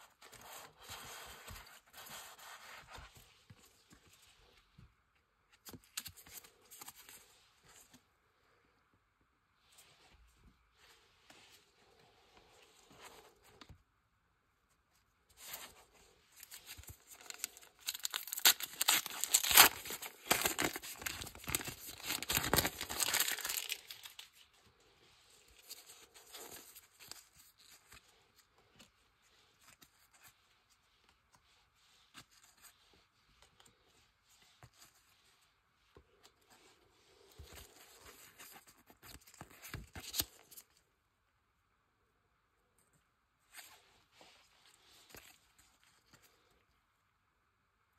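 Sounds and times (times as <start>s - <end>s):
foil pack tearing and crinkling: 17.2s - 24.1s.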